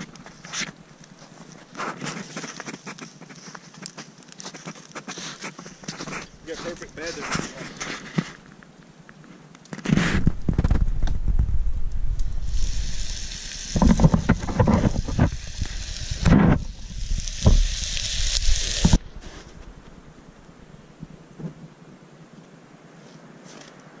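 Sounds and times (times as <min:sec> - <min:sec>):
campfire hissing and sizzling: 0:00.0 - 0:24.0
low rumble on microphone: 0:10.2 - 0:13.2.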